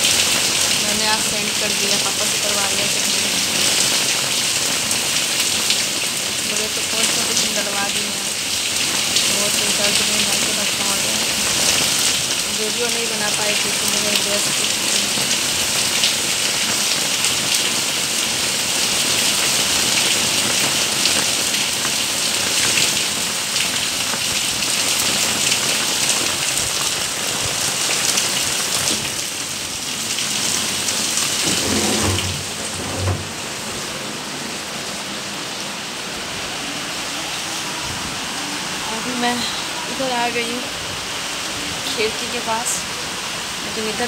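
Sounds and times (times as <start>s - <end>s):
heavy rain pouring: 0.0s - 44.0s
low thumps: 31.4s - 33.8s.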